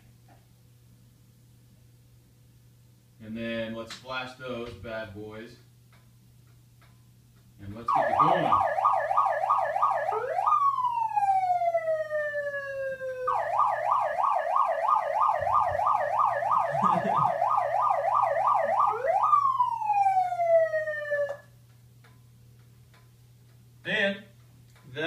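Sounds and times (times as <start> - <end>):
electronic siren wailing and yelping: 7.9 - 21.5.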